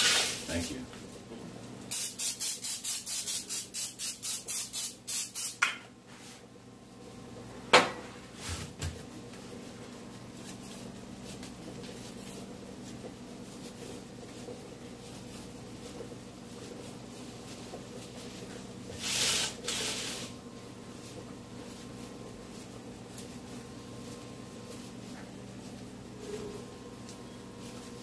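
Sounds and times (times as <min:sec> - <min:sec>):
aerosol spray hissing: 0:01.9 - 0:05.6, 0:19.0 - 0:20.3.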